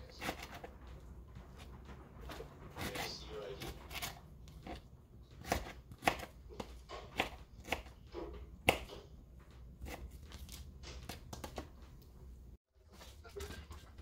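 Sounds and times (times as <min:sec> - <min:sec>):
knife chopping on plastic board: 0:00.0 - 0:00.7, 0:01.6 - 0:09.1, 0:09.8 - 0:11.7
knife scraping on board: 0:01.6 - 0:09.0.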